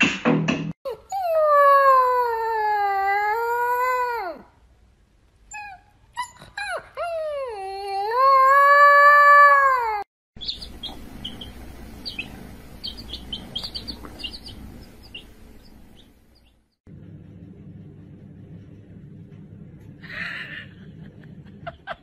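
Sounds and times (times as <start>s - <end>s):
puppy howling: 0.9s - 4.5s, 5.5s - 10.1s
chicks peeping: 10.4s - 16.6s
low hum: 10.4s - 22.0s.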